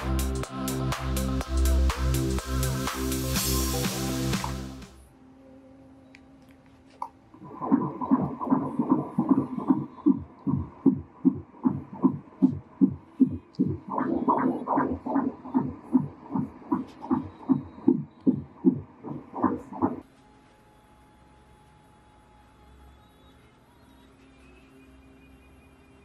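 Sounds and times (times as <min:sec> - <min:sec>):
ultrasound fetal heartbeat: 0:07.4 - 0:20.0.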